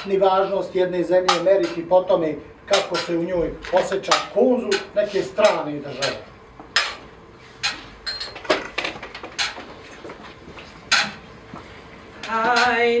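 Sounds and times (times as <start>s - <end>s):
objects knocking and clacking: 2.7s - 9.8s.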